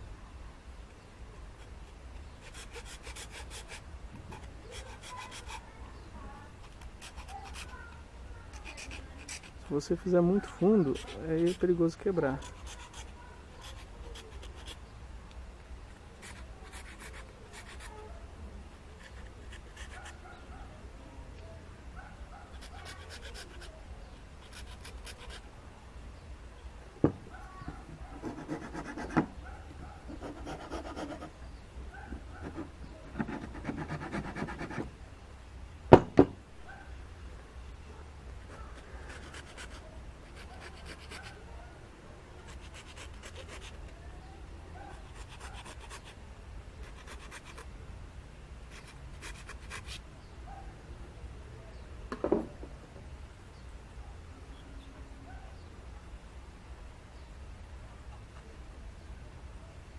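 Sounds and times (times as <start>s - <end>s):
sharp knocks: 35.9s - 36.4s.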